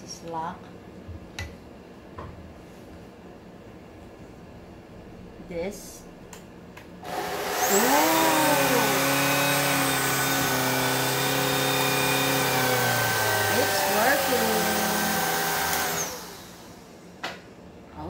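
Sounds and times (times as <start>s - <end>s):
vacuum motor whining: 7.0s - 17.1s.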